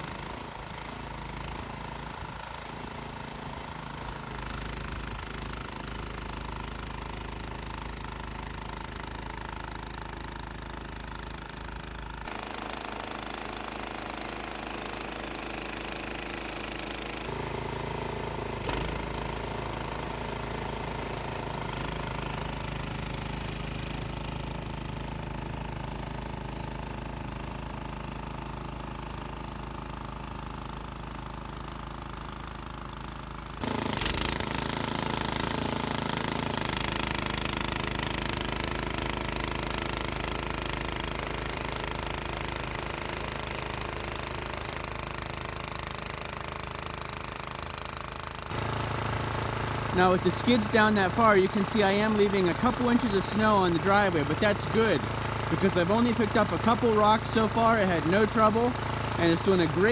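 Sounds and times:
snowblower engine running: 0:00.0 - 0:59.9.

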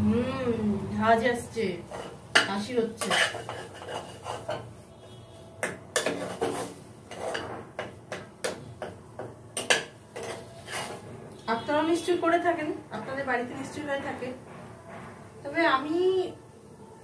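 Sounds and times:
paste frying in pan: 0:01.7 - 0:05.1.

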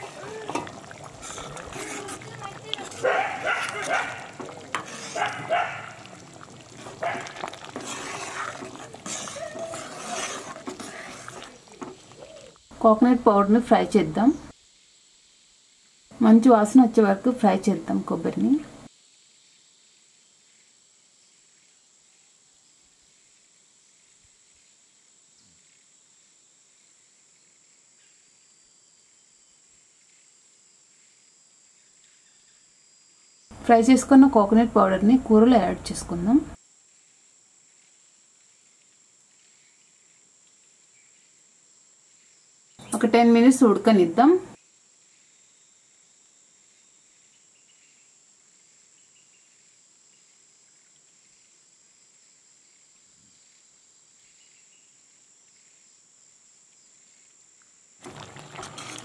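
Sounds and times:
animal calling: 0:00.0 - 0:07.7, 0:08.4 - 0:12.6
ladle stirring thick curry: 0:00.0 - 0:12.5, 0:58.0 - 0:59.0.

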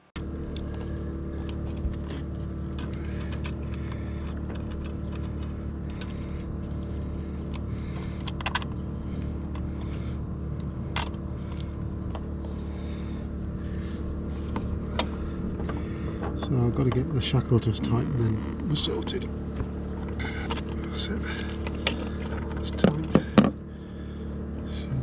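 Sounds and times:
small engine droning: 0:00.0 - 0:25.0.

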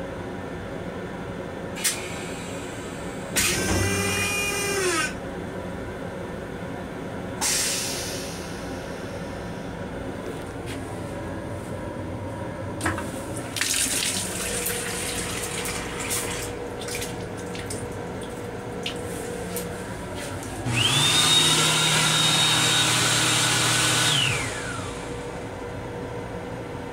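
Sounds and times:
electric hand dryer whining: 0:02.0 - 0:05.2, 0:20.5 - 0:25.6
water running from faucet: 0:13.5 - 0:18.0.

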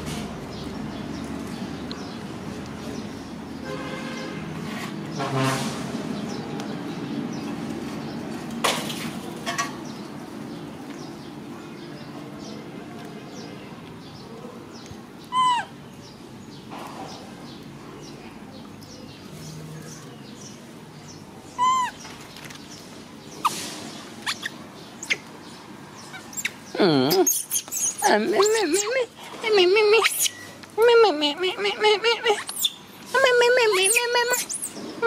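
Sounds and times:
squeaky animal calls: 0:15.3 - 0:15.8, 0:21.6 - 0:22.0, 0:24.2 - 0:25.2, 0:26.0 - 0:29.1, 0:29.8 - 0:34.8.

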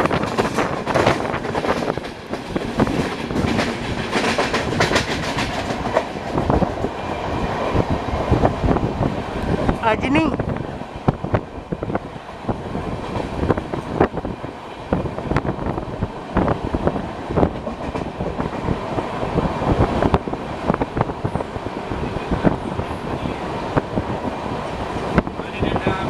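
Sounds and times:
wheels clacking over rail joints: 0:00.0 - 0:06.9
train rumbling on track: 0:00.0 - 0:26.0.

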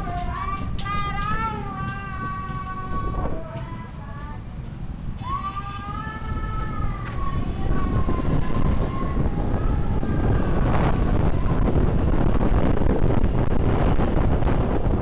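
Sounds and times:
road rumble: 0:00.0 - 0:15.0
wind buffeting microphone: 0:00.0 - 0:15.0
siren wailing: 0:05.2 - 0:12.1.

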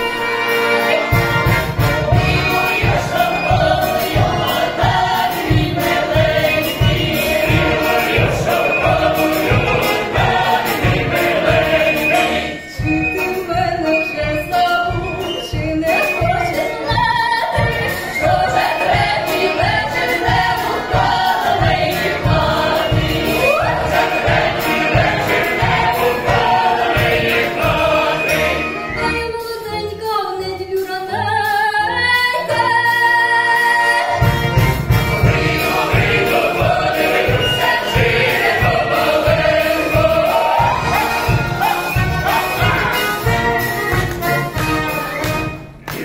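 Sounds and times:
choir singing folk song: 0:00.0 - 0:29.3, 0:32.3 - 0:46.0.

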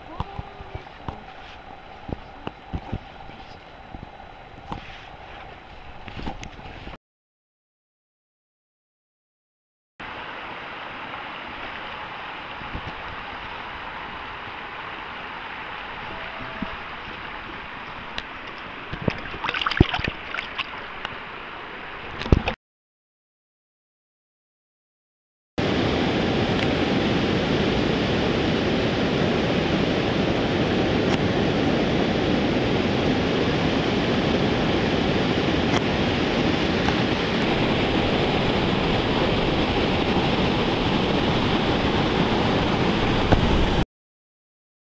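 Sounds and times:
stream water rushing: 0:00.0 - 0:06.9, 0:10.0 - 0:22.6, 0:25.6 - 0:43.8
fish splashing in water: 0:18.3 - 0:21.0.

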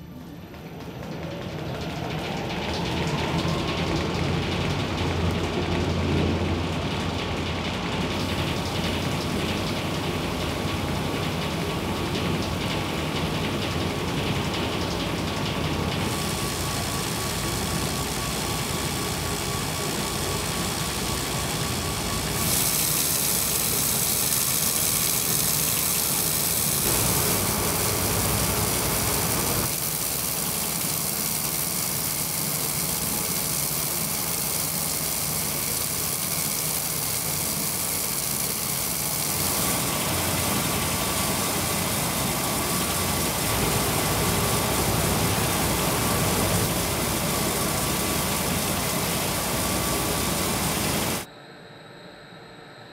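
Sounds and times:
water spraying: 0:16.0 - 0:51.3
wire saw cutting stone: 0:16.1 - 0:51.3.

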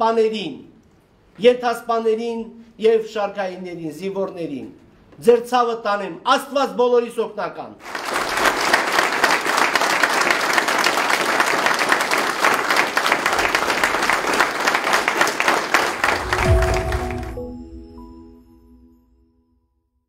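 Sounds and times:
crowd applauding: 0:07.8 - 0:17.6.

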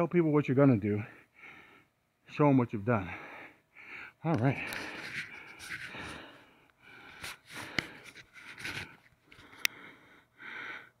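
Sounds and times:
person breathing and sniffing: 0:03.2 - 0:11.0.

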